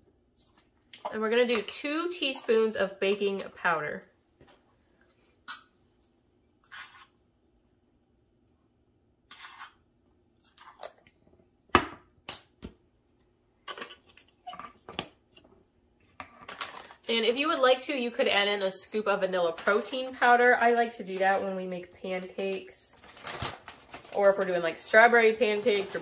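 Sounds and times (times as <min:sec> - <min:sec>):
spoon scraping baking powder: 0:00.4 - 0:03.4, 0:06.6 - 0:07.2, 0:09.3 - 0:10.9.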